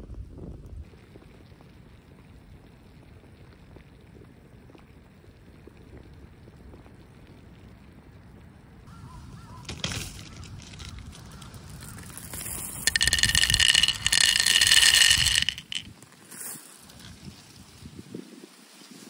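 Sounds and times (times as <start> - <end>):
candies rattling into wooden bowl: 12.3 - 15.9.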